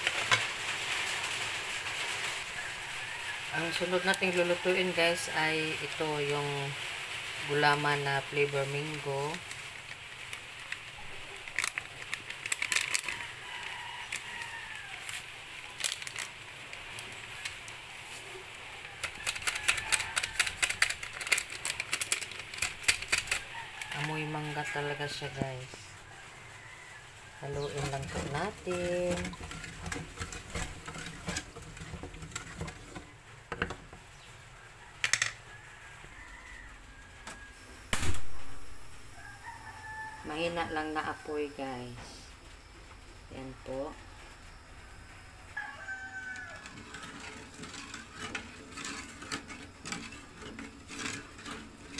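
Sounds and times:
foil sachet crackling: 0:00.0 - 0:06.8, 0:07.4 - 0:26.0, 0:27.3 - 0:32.9
powder being poured: 0:00.0 - 0:34.2
wooden spoon scraping a metal pot: 0:17.0 - 0:25.8, 0:27.4 - 0:34.1, 0:45.6 - 0:51.9.

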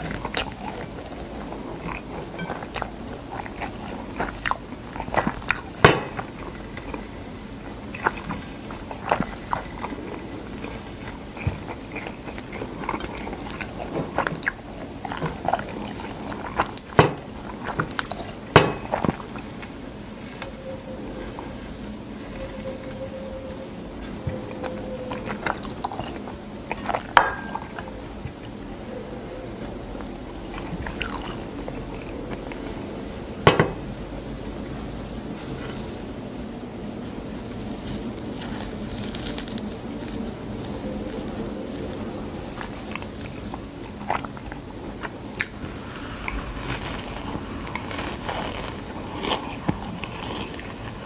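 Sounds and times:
chewing dry seaweed: 0:00.0 - 0:51.0
crisp sheets crackling: 0:30.1 - 0:44.4, 0:45.0 - 0:51.0.

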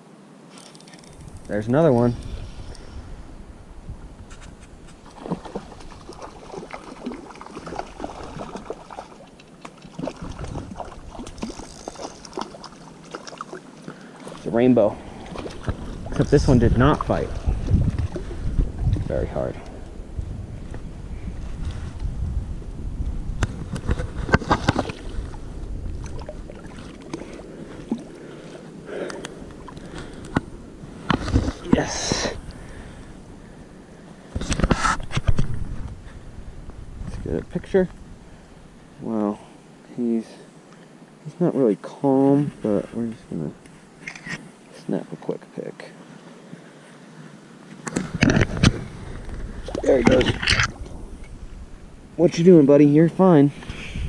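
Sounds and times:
wind rumble on microphone: 0:01.1 - 0:08.8, 0:10.0 - 0:12.4, 0:14.4 - 0:28.2, 0:29.3 - 0:39.1, 0:47.9 - 0:52.5, 0:53.5 - 0:54.0
water splashing and lapping: 0:04.3 - 0:19.4, 0:23.5 - 0:32.8, 0:46.0 - 0:51.4
sharp splashes and knocks: 0:04.9 - 0:14.4, 0:23.4 - 0:25.4
water splashing at bank: 0:04.9 - 0:19.2.

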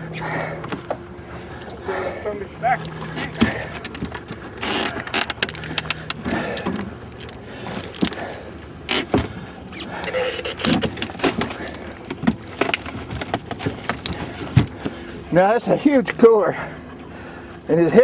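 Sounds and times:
motor humming: 0:00.0 - 0:10.9.

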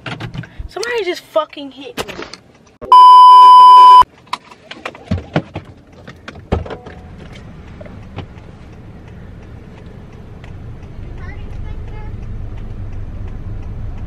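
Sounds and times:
test tone beep: 0:02.9 - 0:04.0
car rumble from inside cabin: 0:07.0 - 0:14.0.

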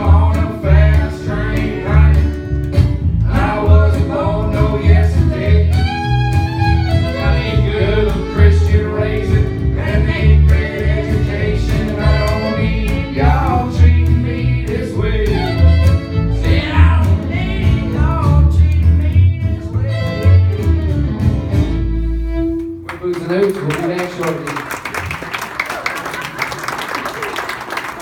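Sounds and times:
upright bass: 0:00.0 - 0:22.8
acoustic guitar: 0:00.0 - 0:23.2
fiddle playing sliding lines: 0:05.3 - 0:14.0, 0:15.0 - 0:17.1, 0:19.6 - 0:22.9.

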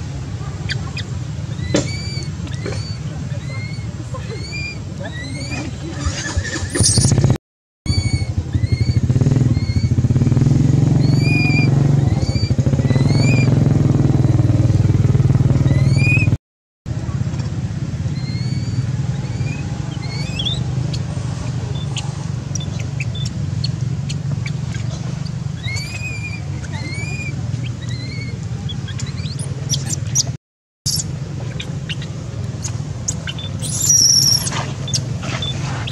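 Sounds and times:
high rising chirp-like calls: 0:00.0 - 0:07.2, 0:07.9 - 0:10.2, 0:10.8 - 0:16.4, 0:18.0 - 0:35.9
motorcycle engine idling: 0:07.9 - 0:30.3.

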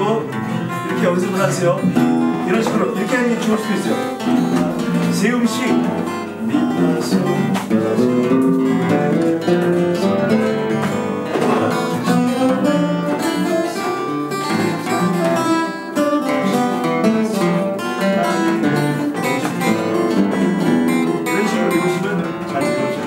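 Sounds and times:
acoustic guitar picking scale: 0:00.0 - 0:23.0.

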